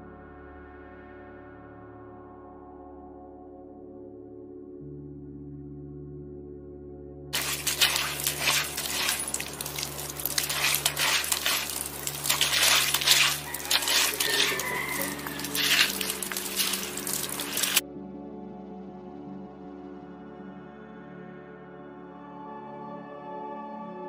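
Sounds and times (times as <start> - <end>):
dog digging in gravel: 7.4 - 17.8
soft ambient music: 17.8 - 24.0.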